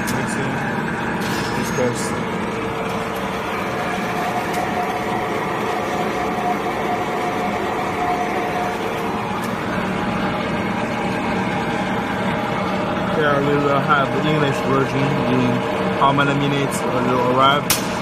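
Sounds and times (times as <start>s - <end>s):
mixer motor humming: 0.0s - 18.0s
steady whine: 0.0s - 18.0s.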